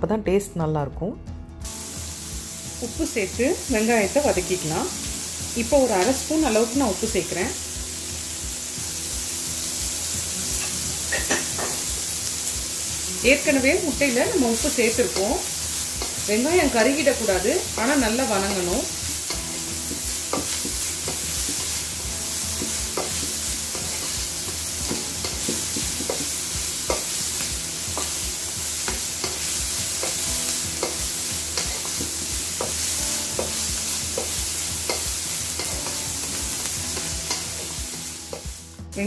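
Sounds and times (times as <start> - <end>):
onions sizzling in hot oil: 1.6 - 39.0
spatula scraping and tapping pan: 17.8 - 21.9, 22.5 - 38.5.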